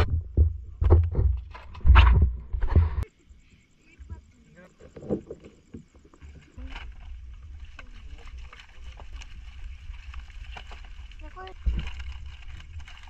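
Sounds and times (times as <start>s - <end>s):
plastic bag crackling: 7.7s - 13.0s.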